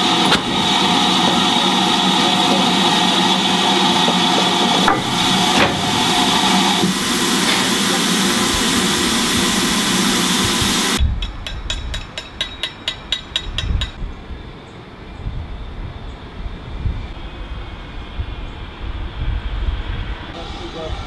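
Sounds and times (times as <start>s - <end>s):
steam hissing loudly: 0.0s - 11.0s, 17.2s - 21.0s.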